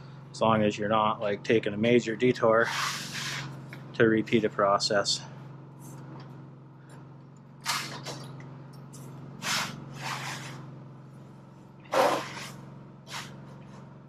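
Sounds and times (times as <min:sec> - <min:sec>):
low hum: 0:00.0 - 0:14.0
metal trim scraping: 0:02.5 - 0:03.8, 0:07.6 - 0:10.8, 0:11.8 - 0:13.9.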